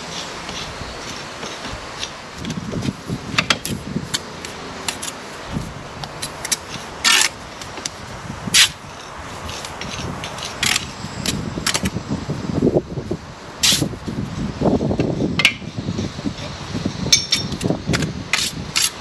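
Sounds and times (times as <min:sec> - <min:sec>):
trowel scrapes: 0:00.0 - 0:02.2, 0:08.6 - 0:11.9, 0:18.3 - 0:19.0
trowel clinks and taps on bricks: 0:17.1 - 0:17.7.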